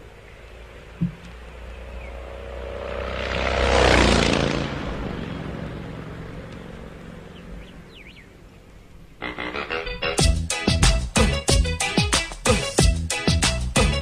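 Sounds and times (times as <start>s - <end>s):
engine passing by: 0.0s - 10.1s.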